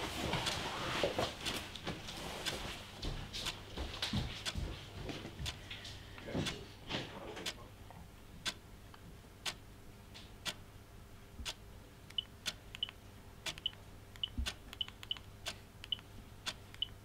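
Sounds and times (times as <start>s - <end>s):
clock ticking: 11.4s - 17.0s.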